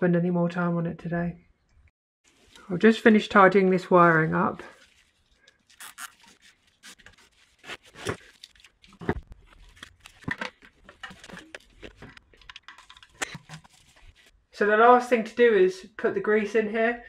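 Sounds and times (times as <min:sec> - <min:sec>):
hands handling electrical wiring: 0:04.8 - 0:14.3.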